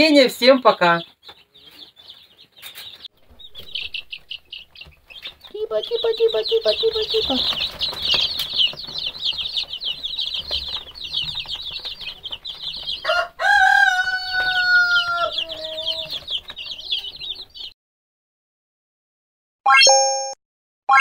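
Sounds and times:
chicks peeping: 0.0 - 17.7
rooster crowing: 13.0 - 17.4.

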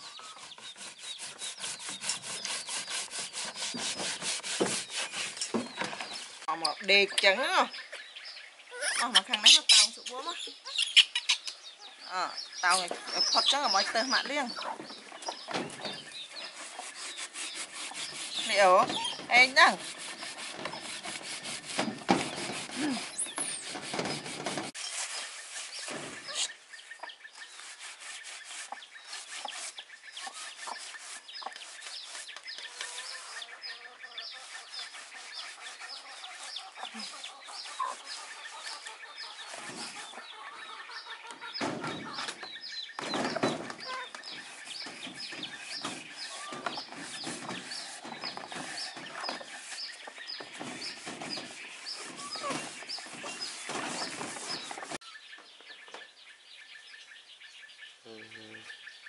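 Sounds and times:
baby chicks peeping: 0.0 - 4.0, 5.4 - 21.2, 23.0 - 27.6, 28.3 - 59.0
brush scrubbing plastic tub: 12.7 - 26.4, 43.2 - 55.0.

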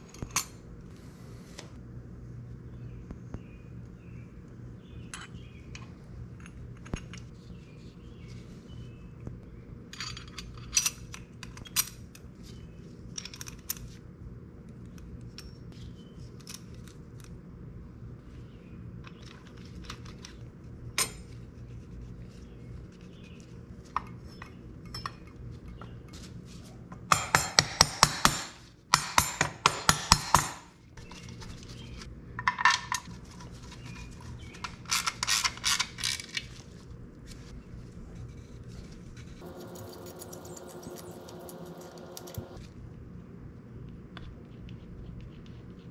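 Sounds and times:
metal tools clinking: 24.1 - 25.4.

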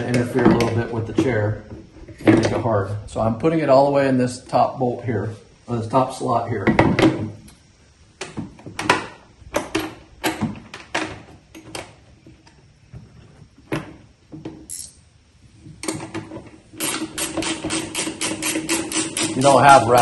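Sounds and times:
ratchet wrench clicking: 16.8 - 20.0.

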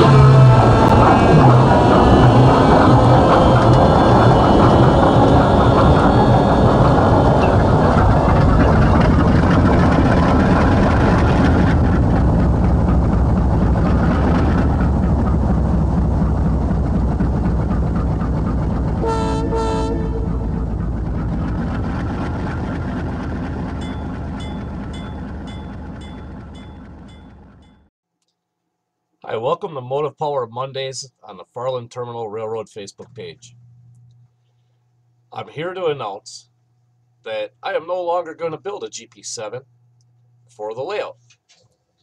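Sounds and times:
diesel locomotive rumbling: 0.0 - 27.9
train horn blasts: 19.0 - 20.7
bell ringing: 23.8 - 27.8.

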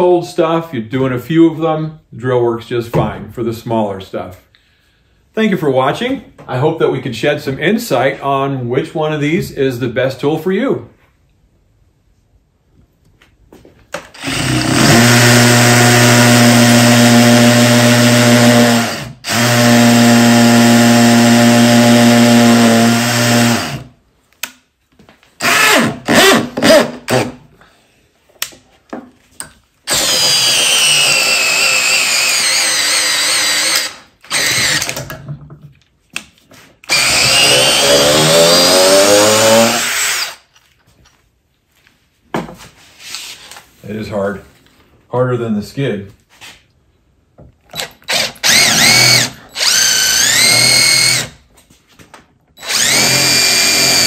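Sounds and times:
cordless drill whining: 14.1 - 23.9, 25.4 - 27.3, 29.9 - 35.0, 36.8 - 40.5, 47.7 - 51.4, 52.6 - 54.0.

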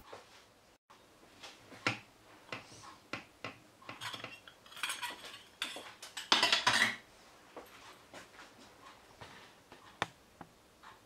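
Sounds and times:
metal scraping and clattering on plate: 3.9 - 7.0
metal clicks and clinks: 4.0 - 6.8.

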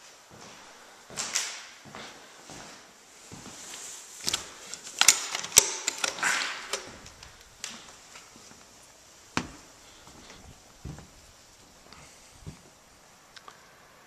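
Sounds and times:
footsteps on deck boards: 6.8 - 12.8.

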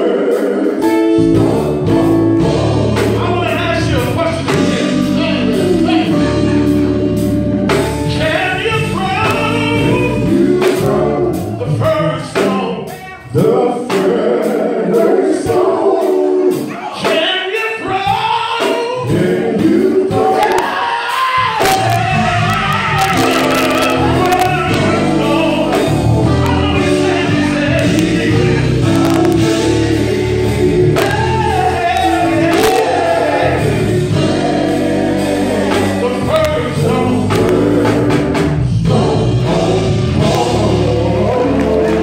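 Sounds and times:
drum kit: 0.0 - 42.0
guitar: 0.8 - 13.3, 20.3 - 42.0
electric bass: 0.9 - 12.1, 21.6 - 42.0
man singing into microphone: 8.1 - 13.5, 22.5 - 29.6.

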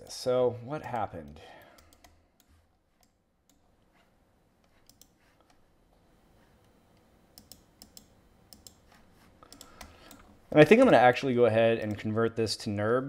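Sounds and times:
mouse and keyboard clicks: 7.4 - 10.3.

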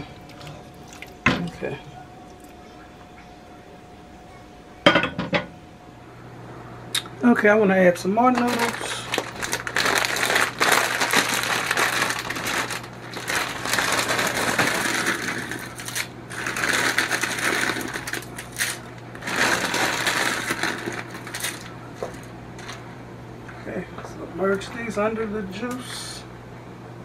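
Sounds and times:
plastic bag crinkling: 8.3 - 22.8.

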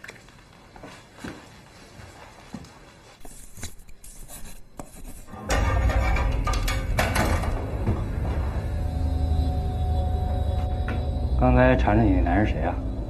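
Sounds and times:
pen writing: 3.2 - 5.3
tense music with low drone: 5.5 - 13.0.

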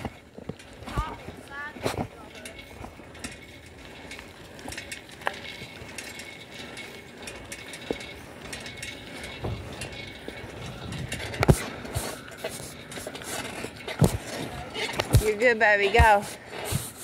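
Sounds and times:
bicycle clicks and rattles: 0.0 - 17.0
steady road hiss: 0.0 - 17.0
phone rubbing against shirt: 16.0 - 17.0.

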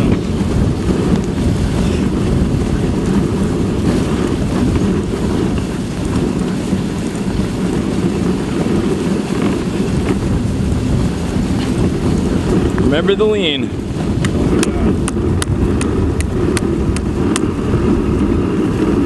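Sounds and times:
sled runners hissing on snow: 0.0 - 19.0
wind rumble on microphone: 0.0 - 19.0.

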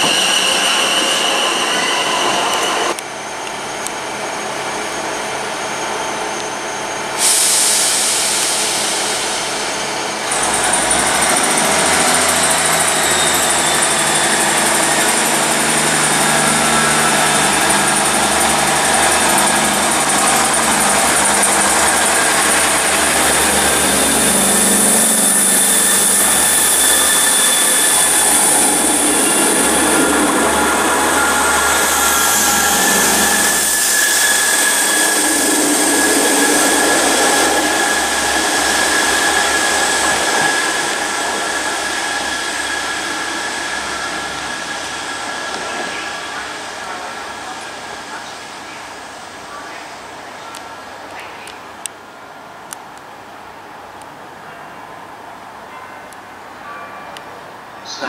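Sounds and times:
train diesel engines running: 0.0 - 56.6.

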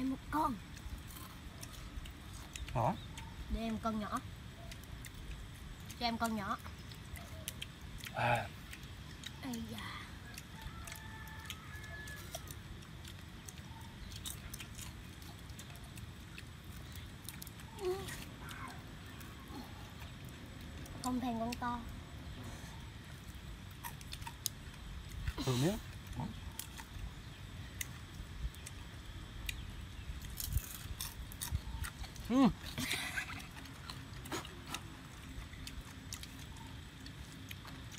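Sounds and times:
soft chewing: 0.0 - 37.9
crab shells cracking: 6.6 - 21.1, 26.0 - 32.3.

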